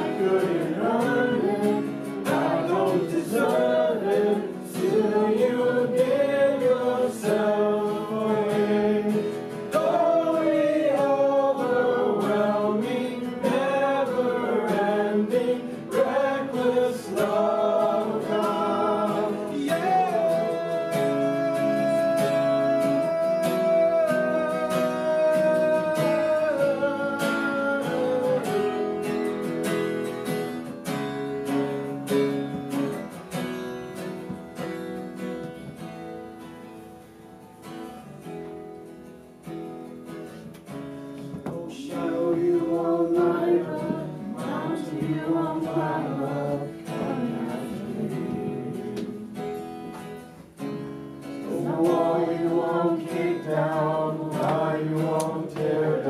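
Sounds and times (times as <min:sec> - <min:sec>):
man singing: 0:00.0 - 0:29.1, 0:41.4 - 0:49.4, 0:51.4 - 0:56.0
acoustic guitar strumming: 0:00.0 - 0:56.0.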